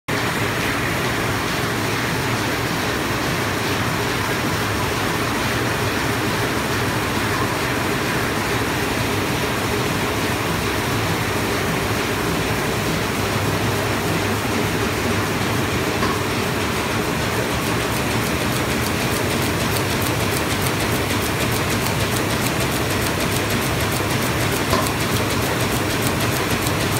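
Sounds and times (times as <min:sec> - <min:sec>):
printing press clatter: 0:00.2 - 0:26.9
sheet feeder fast clicking: 0:17.4 - 0:26.9.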